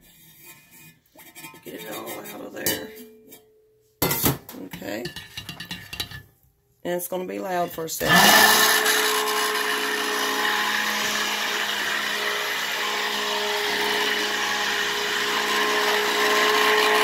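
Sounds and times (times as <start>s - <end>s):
stick blender motor whine: 8.0s - 17.0s.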